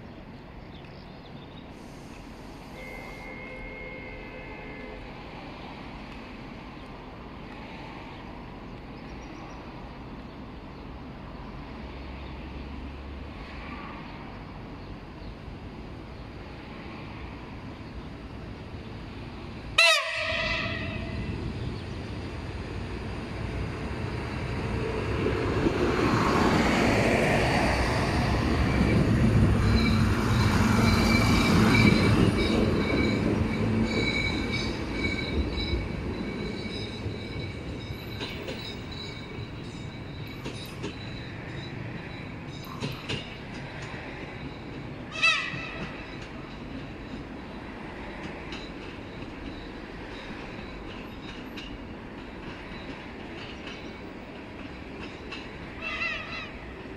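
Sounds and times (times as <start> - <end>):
train engine and running gear: 0.2 - 56.9
train horn blast: 2.7 - 5.3, 19.8 - 21.3
wheel squeal: 29.6 - 43.2.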